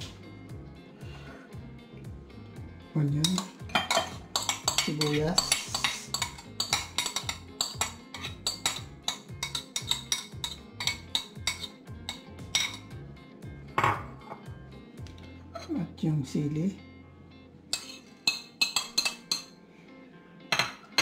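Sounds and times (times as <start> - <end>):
metal spoon scraping ceramic bowls: 3.2 - 12.9, 17.7 - 19.5.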